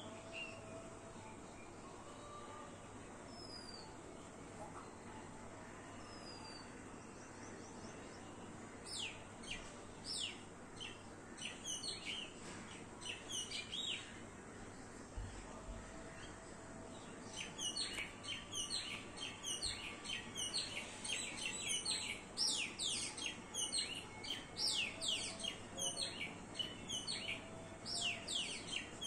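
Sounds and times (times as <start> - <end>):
starlings chattering: 17.3 - 29.0.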